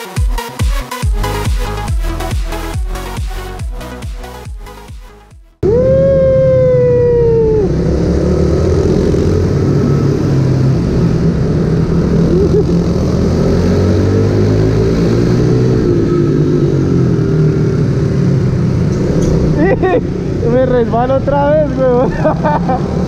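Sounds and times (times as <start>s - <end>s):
loud low rumble: 1.0s - 23.0s
mini motorcycle engines revving: 5.6s - 23.0s.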